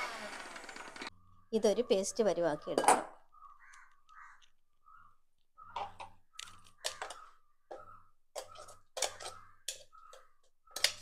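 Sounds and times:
spoon scraping and knocking jar: 8.4 - 10.2.

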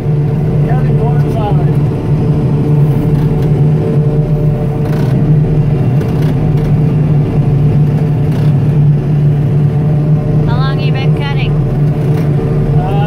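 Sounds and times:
harvester machine drone: 0.0 - 13.0.

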